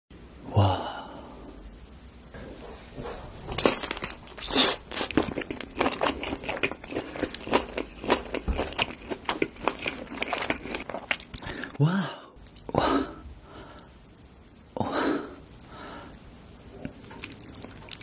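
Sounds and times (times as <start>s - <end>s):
wet clicky chewing: 16.8s - 18.0s.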